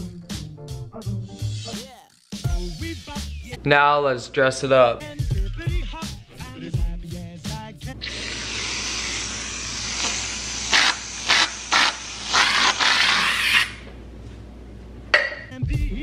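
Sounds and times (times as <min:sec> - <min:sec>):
aerosol whipped cream spraying: 0:08.0 - 0:13.7.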